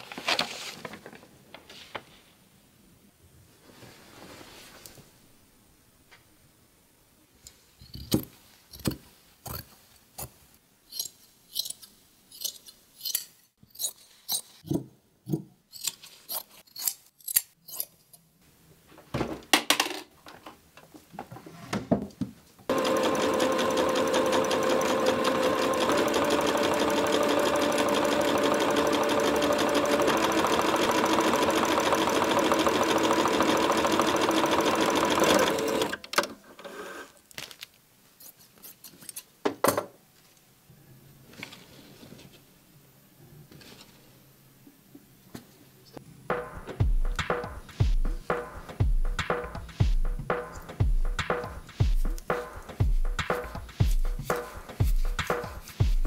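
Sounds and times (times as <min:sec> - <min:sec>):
electric sewing machine stitching: 0:22.7 - 0:36.1.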